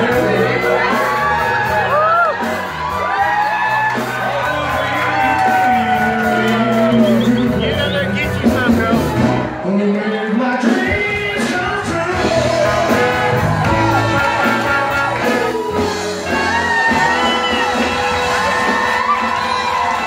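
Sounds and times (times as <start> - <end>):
rock band playing: 0.0 - 20.0
person singing: 4.7 - 8.2, 9.6 - 19.0.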